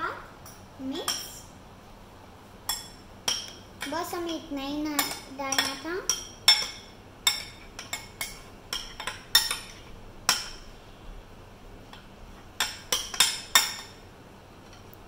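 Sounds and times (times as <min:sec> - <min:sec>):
spoon clinking against glass bowl: 0:05.0 - 0:10.6.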